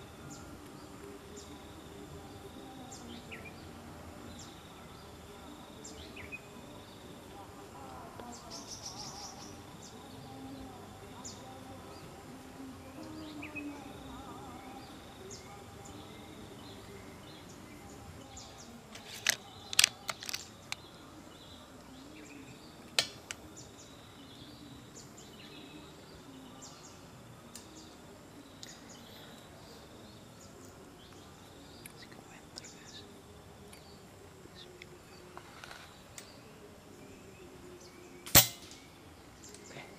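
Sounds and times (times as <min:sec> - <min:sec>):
insects: 0:00.0 - 0:39.9
faint bird chirps: 0:08.2 - 0:39.9
sharp clicks: 0:18.9 - 0:20.8.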